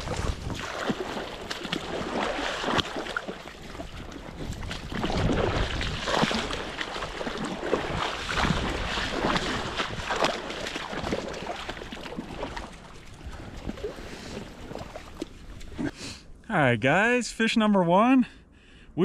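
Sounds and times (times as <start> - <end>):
river water splashing: 0.0 - 15.9.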